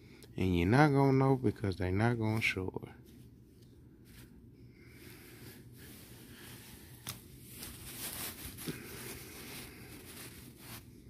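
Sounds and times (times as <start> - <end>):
plastic sleeve rustling: 5.8 - 11.0.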